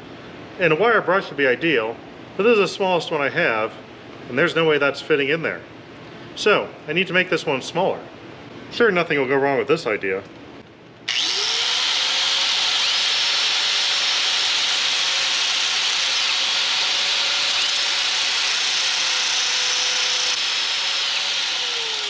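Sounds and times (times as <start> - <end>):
angle grinder grinding wire brush: 11.1 - 22.0.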